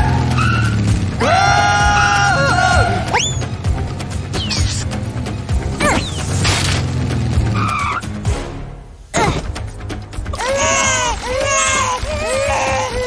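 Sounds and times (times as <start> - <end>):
cartoon babies wailing: 1.2 - 3.4, 10.3 - 13.0
cartoon music with bass beat: 1.8 - 6.3
falling whistle effects: 3.1 - 3.5.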